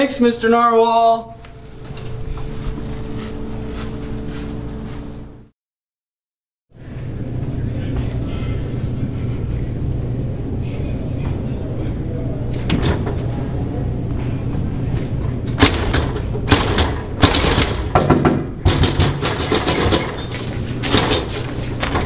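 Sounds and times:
door push bar knocks and clunks: 15.6s - 20.2s.

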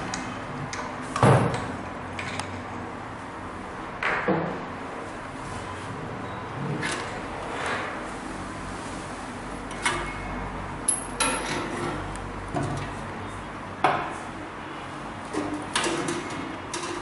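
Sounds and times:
hard parts knocking and clinking: 10.8s - 11.9s.

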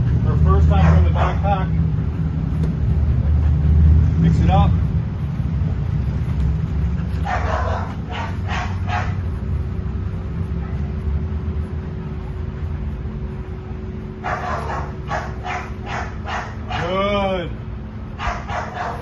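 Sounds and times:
low rumble: 0.0s - 16.7s
dog barking: 0.6s - 1.7s, 7.2s - 9.2s, 14.2s - 17.0s, 18.2s - 19.0s.

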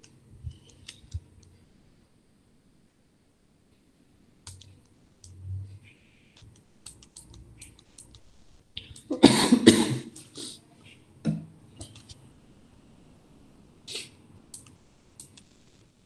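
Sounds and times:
man coughing: 9.1s - 10.2s.

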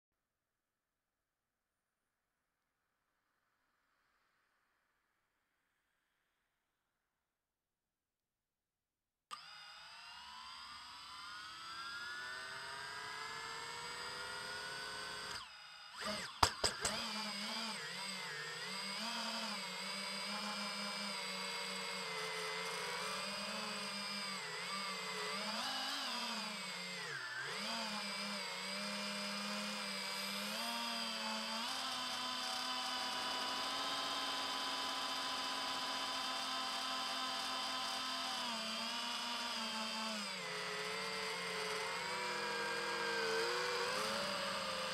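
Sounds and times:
drone motors whining: 9.3s - 44.9s.

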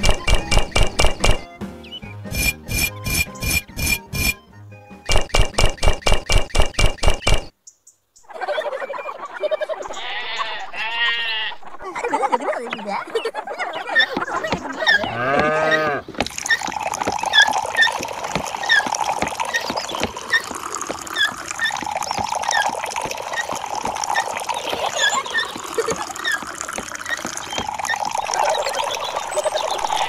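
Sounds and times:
short high chirps: 2.3s - 4.4s
water pouring and trickling: 14.3s - 30.0s
cow mooing: 14.9s - 16.1s.

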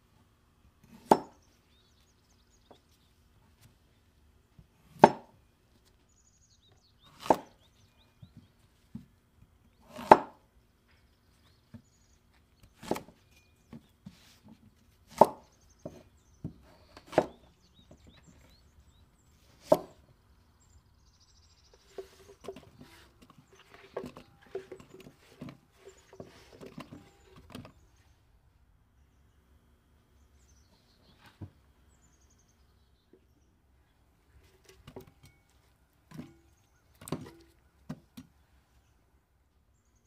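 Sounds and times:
knife chopping on wooden board: 0.9s - 1.4s, 5.0s - 5.3s, 7.1s - 7.6s, 9.9s - 10.4s, 15.1s - 17.4s, 19.6s - 20.0s.

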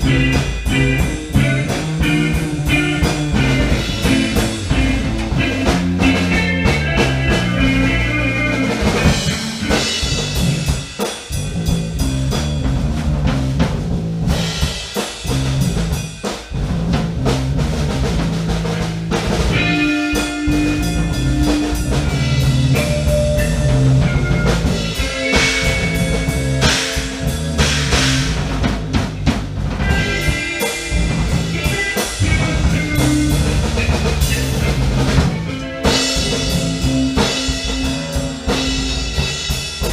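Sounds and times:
guitar playing: 0.0s - 10.8s, 19.1s - 39.9s
bass line: 0.0s - 39.9s
drum kit steady beat: 0.0s - 39.9s.

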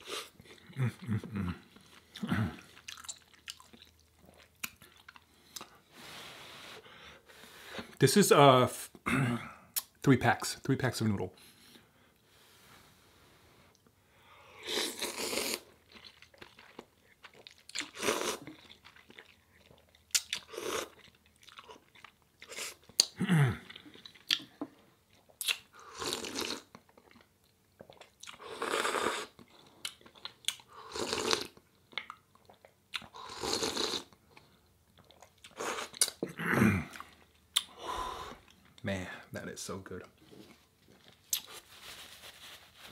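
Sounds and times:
wet chewing: 1.7s - 5.7s, 15.0s - 28.4s
slurping noodles: 14.6s - 15.7s, 28.3s - 29.4s, 30.8s - 31.6s, 33.1s - 34.1s.

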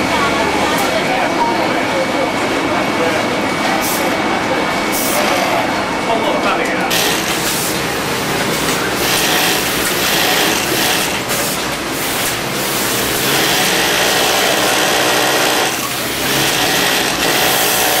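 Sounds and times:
sewing machine running: 6.9s - 18.0s.

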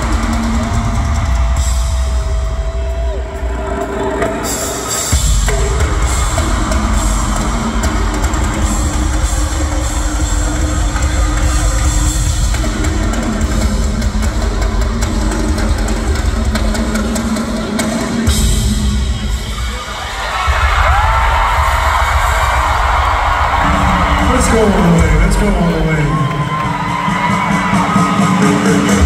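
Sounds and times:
rock drum solo: 0.0s - 29.0s.

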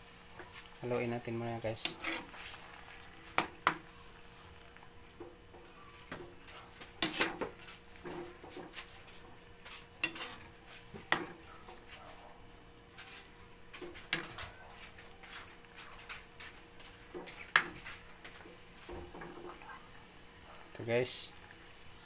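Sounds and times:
metal ladle scraping wok: 1.8s - 3.0s, 9.7s - 10.5s.

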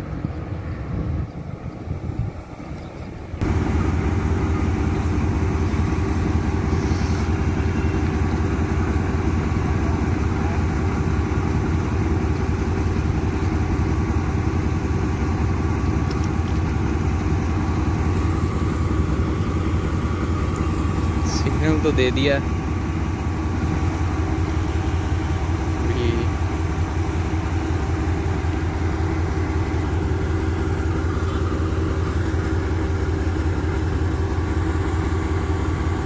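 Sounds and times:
locomotive engine droning: 0.0s - 36.0s.

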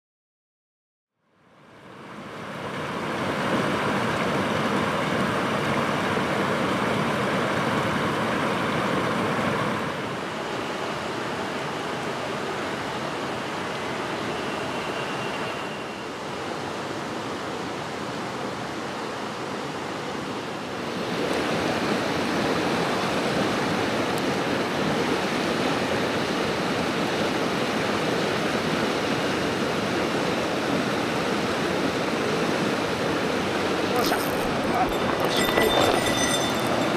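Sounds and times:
stream rushing over rocks: 20.6s - 36.9s.

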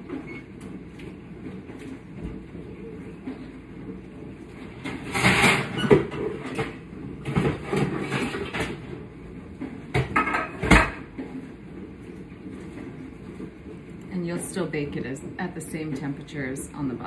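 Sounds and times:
dishes and utensils clattering: 5.0s - 8.8s, 9.9s - 11.1s.

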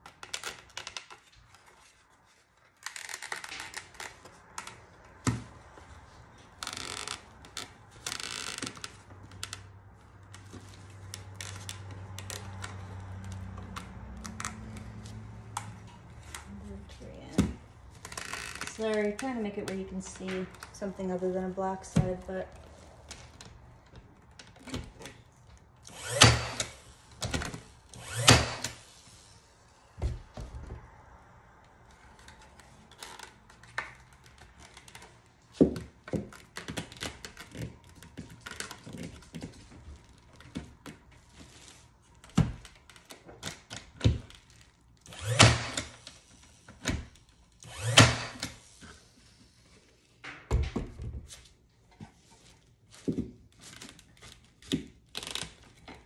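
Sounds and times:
nail gun shots: 26.0s - 26.8s, 28.0s - 28.8s, 45.2s - 45.8s, 47.7s - 48.5s.

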